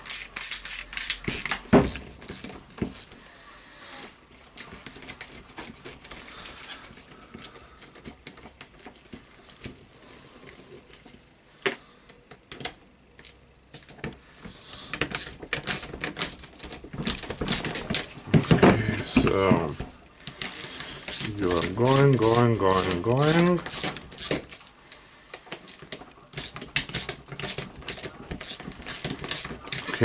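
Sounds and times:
hand ratchet clicking: 0.0 - 3.2, 14.8 - 18.1, 20.2 - 24.7, 25.3 - 30.0.

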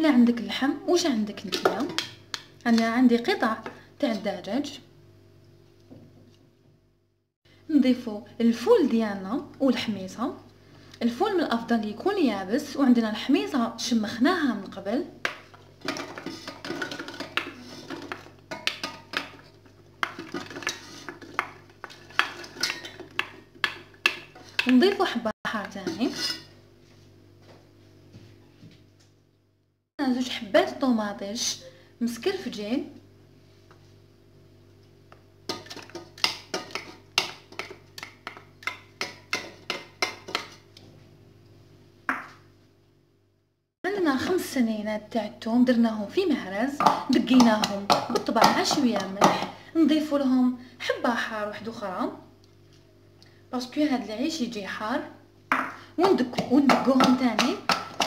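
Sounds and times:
wooden spoon scraping a bowl: 15.8 - 18.3, 19.3 - 23.3, 25.6 - 26.6
wooden spoon knocking on ceramic bowl: 46.8 - 49.6, 55.5 - 58.0.

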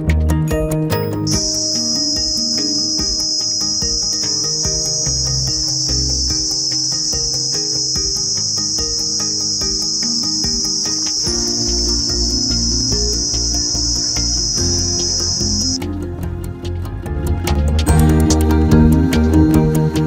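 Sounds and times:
melodic music with bass line: 0.0 - 20.0
insects droning: 1.3 - 15.9.

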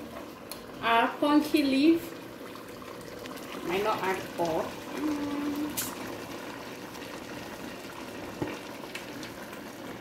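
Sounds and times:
pot simmering and bubbling: 0.0 - 10.0.

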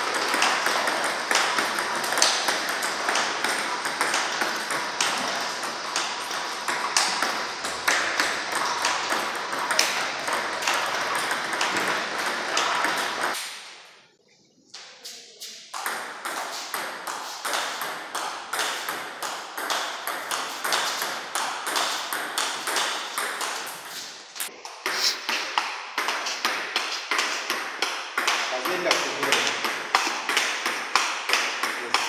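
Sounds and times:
table tennis balls clicking: 0.0 - 13.4, 15.7 - 24.0, 24.9 - 32.0.

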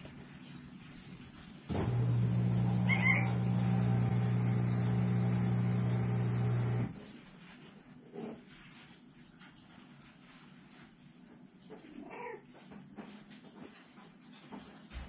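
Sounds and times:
loud machine hum: 1.7 - 7.0
puppy yelping: 2.8 - 3.4.

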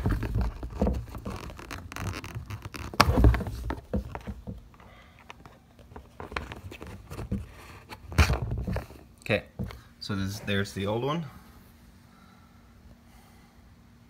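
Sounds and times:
metal nut scraping on plastic: 0.0 - 9.0.

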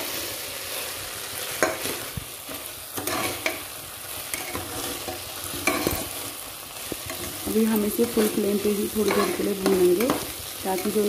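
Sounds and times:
food sizzling in a pot: 0.0 - 11.0
metal ladle scraping a pot: 3.0 - 3.6.

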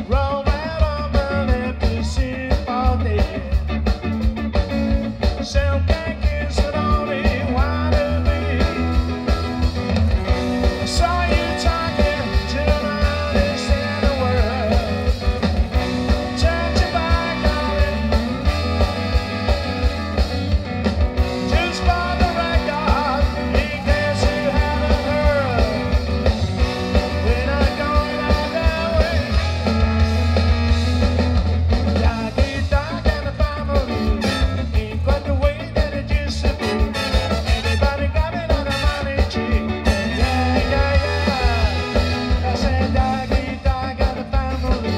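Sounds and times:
bass guitar: 0.0 - 44.9
drums with steady beat: 0.0 - 44.9
electric guitar: 0.0 - 44.9
trombone: 15.8 - 20.5, 26.8 - 31.3, 33.9 - 35.0, 36.5 - 43.2
trumpet: 15.9 - 20.5, 27.1 - 31.2, 33.8 - 35.0, 36.5 - 43.0.

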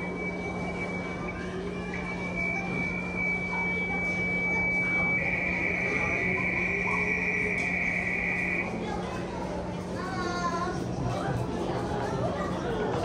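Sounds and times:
low hum: 0.0 - 8.7
background murmur: 0.0 - 13.0
high-pitched buzzy tone: 0.2 - 8.7.

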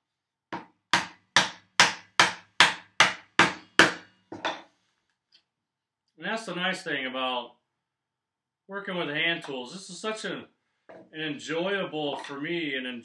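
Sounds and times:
mallet striking chisel: 0.6 - 4.6.

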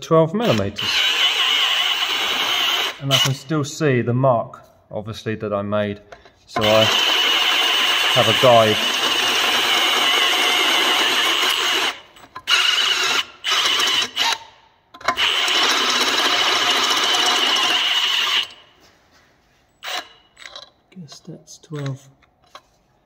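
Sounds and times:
electric drill whining through steel: 0.4 - 3.4, 6.6 - 18.7, 19.8 - 20.6.

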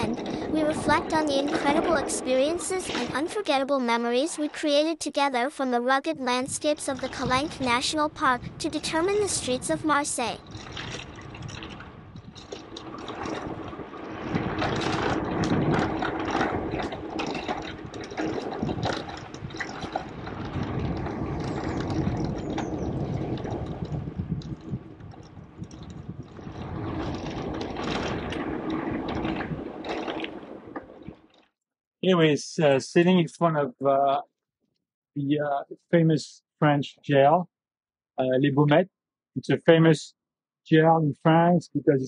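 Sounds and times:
bike rattles and clicks: 10.4 - 31.5.

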